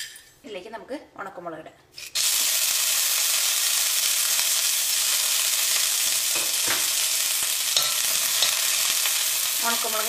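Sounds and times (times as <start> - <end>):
chillies sizzling in hot oil: 2.0 - 10.0.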